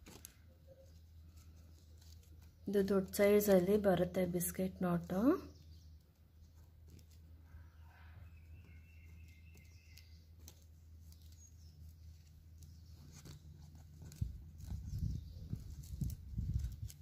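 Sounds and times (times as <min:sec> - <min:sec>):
plastic wire rubbing and clicking: 0:00.0 - 0:02.8, 0:05.6 - 0:07.5, 0:08.5 - 0:17.0.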